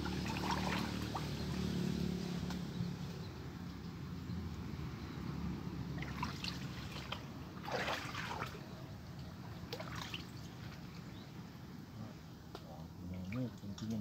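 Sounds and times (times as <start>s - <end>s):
water splashing in a muddy hole: 0.0s - 1.8s, 6.0s - 8.7s, 9.6s - 11.0s.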